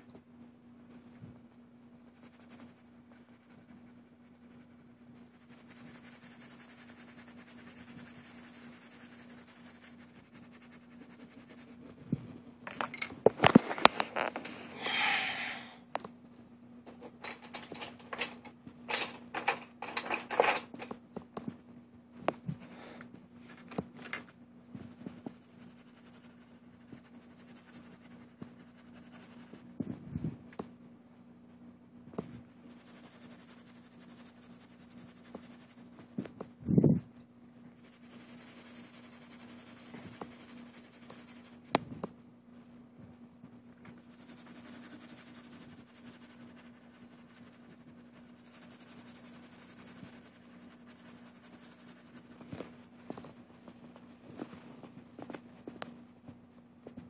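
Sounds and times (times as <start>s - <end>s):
marker scratching on paper: 2.0s - 11.8s, 24.9s - 29.7s, 32.7s - 36.0s, 37.8s - 41.6s, 44.0s - 52.5s
markers clicking and knocking on desk: 17.2s - 21.0s.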